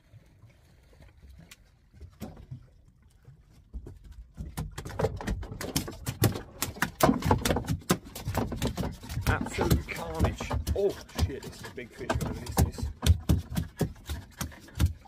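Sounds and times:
gear knocking and clattering: 0:04.6 - 0:15.0.

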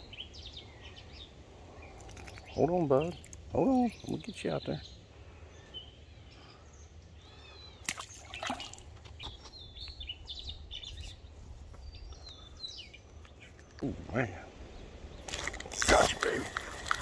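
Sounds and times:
birds chirping and singing: 0:00.0 - 0:17.0
sharp splashy sounds: 0:07.8 - 0:08.8.

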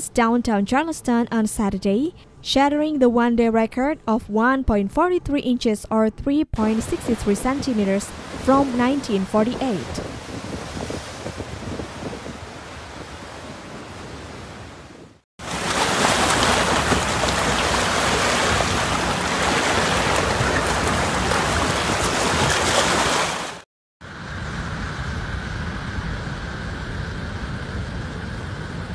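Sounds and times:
wind on microphone: 0:06.6 - 0:15.2
waves breaking over rocks: 0:07.0 - 0:14.5, 0:15.4 - 0:23.6.

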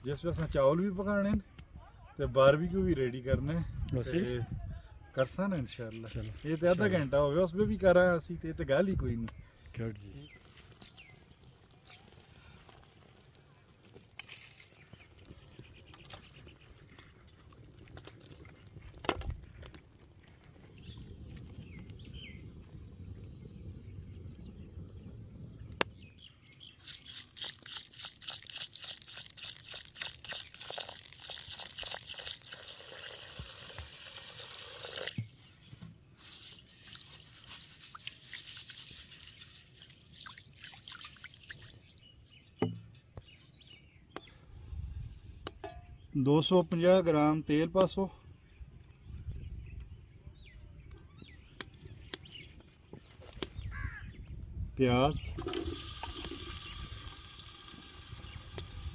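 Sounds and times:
rice and water poured into metal tray: 0:26.8 - 0:35.2, 0:36.2 - 0:41.6, 0:55.1 - 0:58.9.

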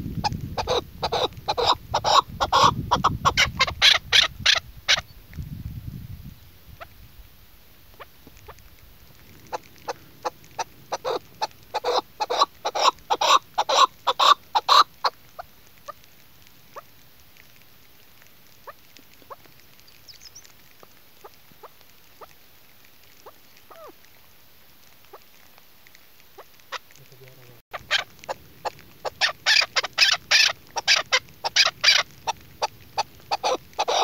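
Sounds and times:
partridge chuck calls: 0:00.6 - 0:05.1, 0:09.2 - 0:16.0, 0:23.2 - 0:24.0, 0:27.8 - 0:34.0.

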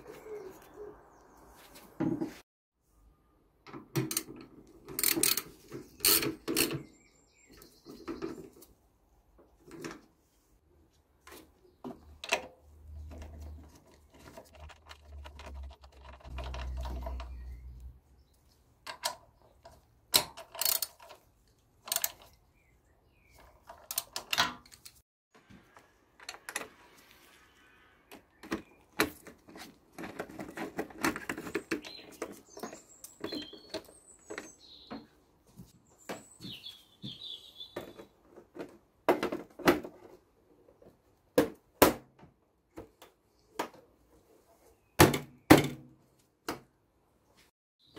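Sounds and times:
plastic panels clicking and knocking: 0:03.7 - 0:07.0, 0:18.8 - 0:21.2, 0:23.4 - 0:25.0, 0:28.1 - 0:35.1, 0:37.8 - 0:40.3.

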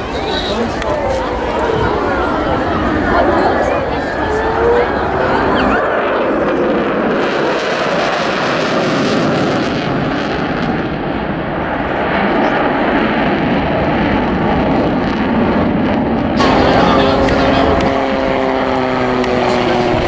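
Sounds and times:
loud jet afterburner roar: 0:00.0 - 0:20.0.

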